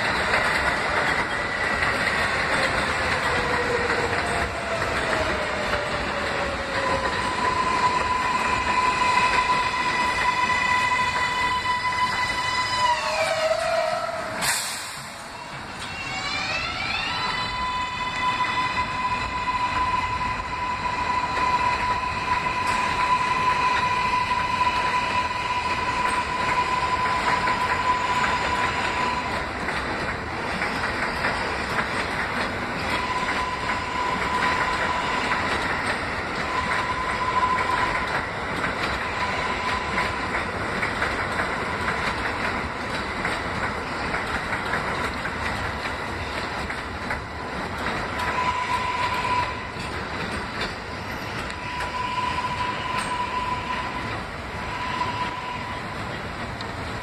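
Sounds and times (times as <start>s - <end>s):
subway train wheels clattering: 0.0s - 57.0s
train high whine: 0.0s - 57.0s.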